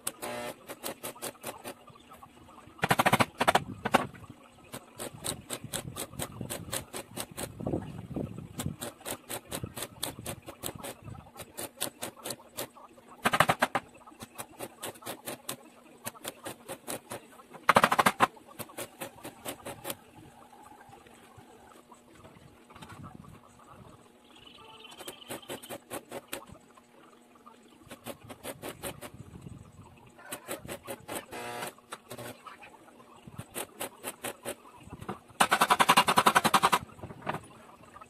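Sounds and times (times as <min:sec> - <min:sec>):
welding arc crackling and spitting: 0:02.8 - 0:07.6, 0:08.5 - 0:20.0.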